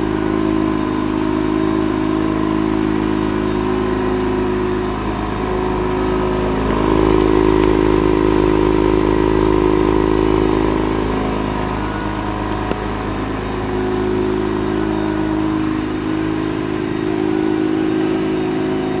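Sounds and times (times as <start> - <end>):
car engine idling: 0.0 - 19.0.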